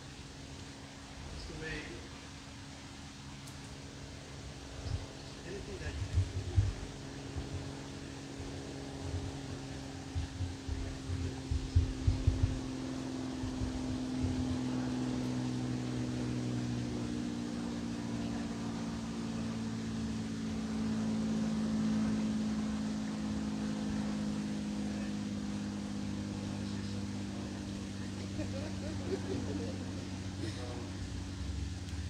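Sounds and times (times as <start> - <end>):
passing vehicle engine hum: 0.0 - 32.0
low thumps: 10.1 - 12.7.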